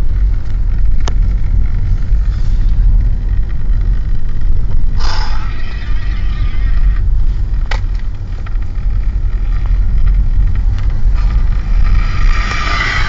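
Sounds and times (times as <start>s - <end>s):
car engine and road rumble: 0.0s - 13.0s
rushing hiss: 5.0s - 5.9s.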